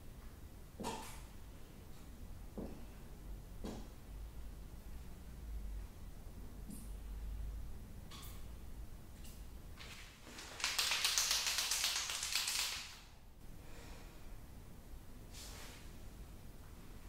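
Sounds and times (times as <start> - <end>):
marker mixing ball rattling: 10.4 - 12.9.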